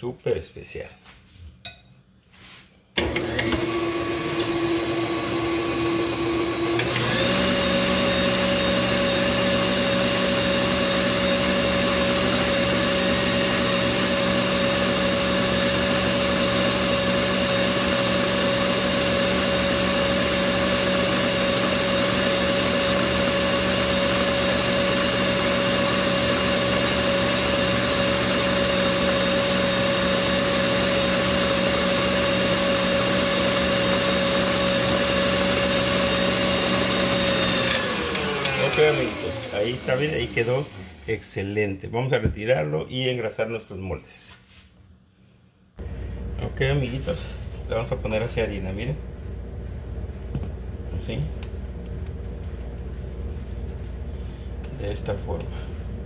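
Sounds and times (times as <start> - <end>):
stand mixer motor whining: 3.0 - 41.4
whisk beating batter in steel bowl: 51.0 - 54.0.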